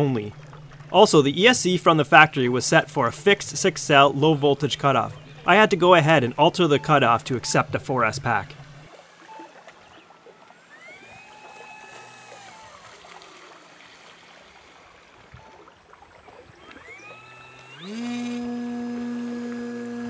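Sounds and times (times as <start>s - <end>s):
model plane motor whining: 8.5s - 13.8s, 15.1s - 20.0s.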